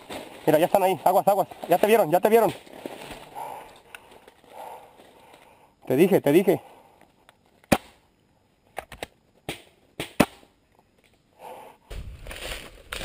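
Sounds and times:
dry leaves crunching underfoot: 11.9s - 13.0s.

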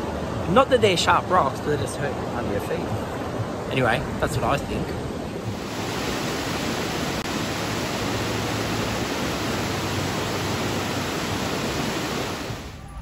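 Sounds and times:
flowing river water: 5.4s - 12.8s.

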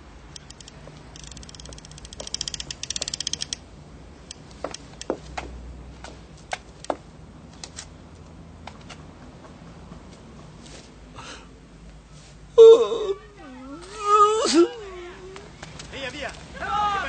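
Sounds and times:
rapid sharp clicks: 0.3s - 3.6s.

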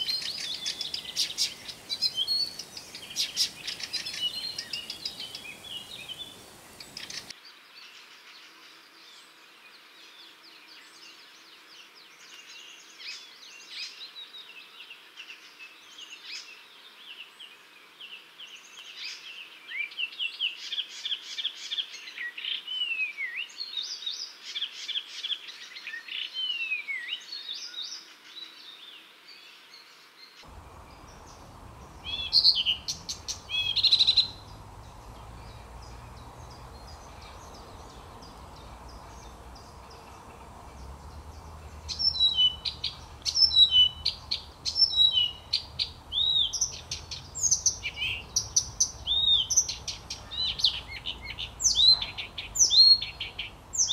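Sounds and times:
warbler singing: 0.0s - 7.4s, 30.4s - 53.9s.

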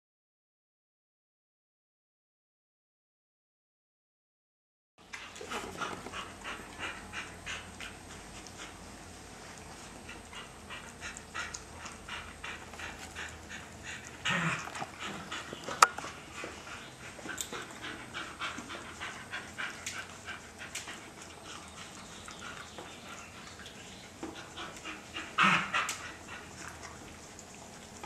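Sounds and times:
dog panting: 5.1s - 27.5s.

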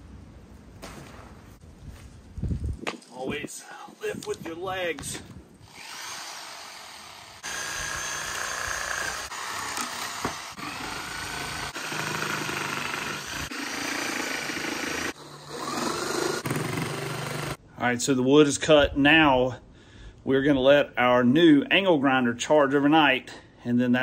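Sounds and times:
reciprocating saw cutting wood: 5.6s - 17.6s.

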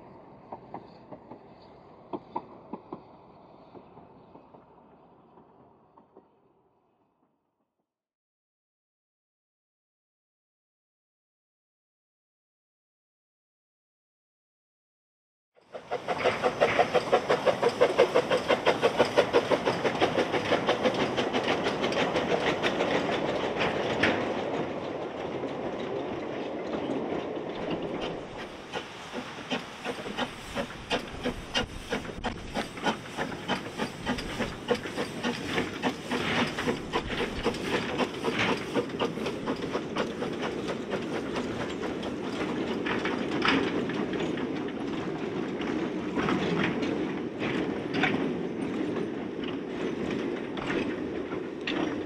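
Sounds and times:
steam hiss: 15.7s - 22.9s, 28.0s - 42.6s
steam locomotive exhaust beats: 15.7s - 25.9s, 27.4s - 52.0s
wagon wheels clicking on rail joints: 15.7s - 52.0s.

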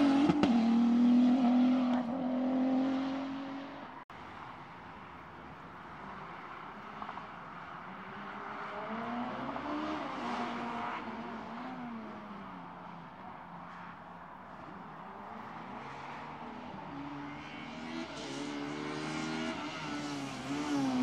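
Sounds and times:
race car engine passing: 0.0s - 4.0s.

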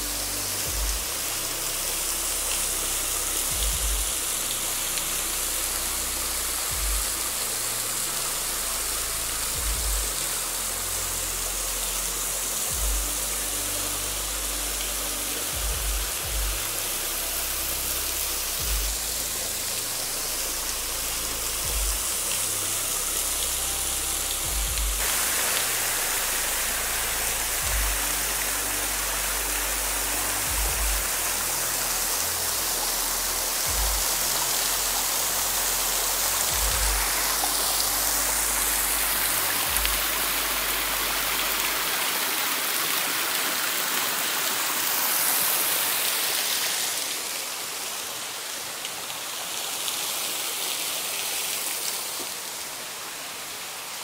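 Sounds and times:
background music with deep bass: 0.0s - 49.8s
waterfall splashing over rocks: 0.0s - 54.0s.

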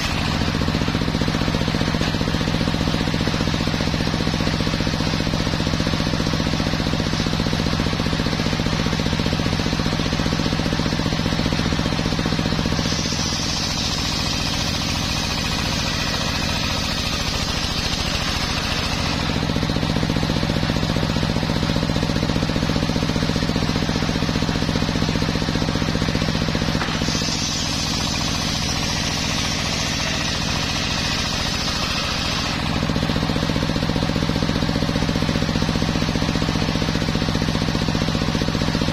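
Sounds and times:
saw blade cutting wood: 0.0s - 5.2s, 11.3s - 20.0s, 23.2s - 34.4s
sawmill machine humming: 0.0s - 38.9s.

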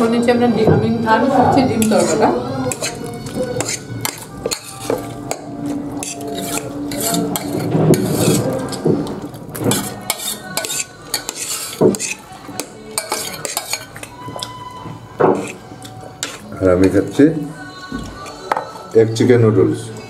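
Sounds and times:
spoon scraping steel bowl: 1.7s - 17.2s.

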